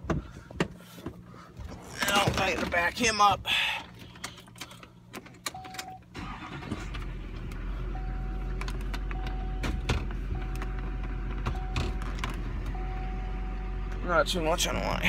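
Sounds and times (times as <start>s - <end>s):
truck engine running: 6.2s - 15.0s.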